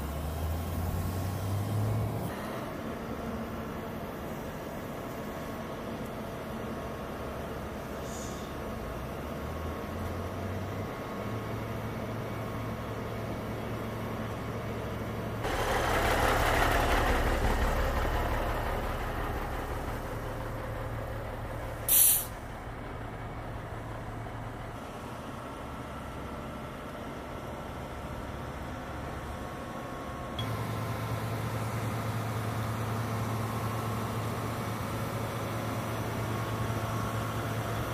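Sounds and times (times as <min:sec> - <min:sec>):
low engine-like hum: 0:00.0 - 0:37.9
short sharp hiss: 0:21.9 - 0:22.4.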